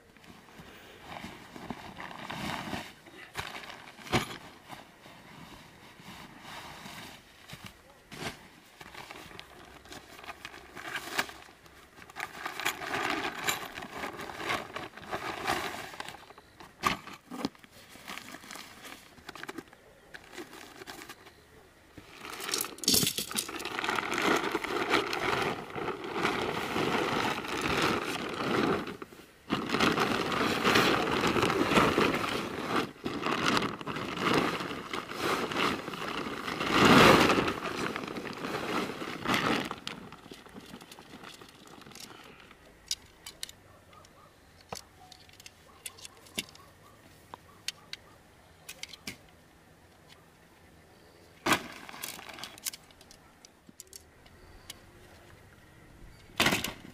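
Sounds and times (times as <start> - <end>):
plastic and tent fabric rustling: 0.0 - 19.6, 21.9 - 42.4, 51.4 - 53.0.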